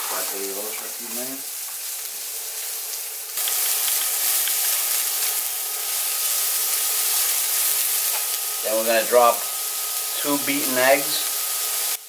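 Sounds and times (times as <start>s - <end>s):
onion sizzling in oil: 0.0s - 12.0s.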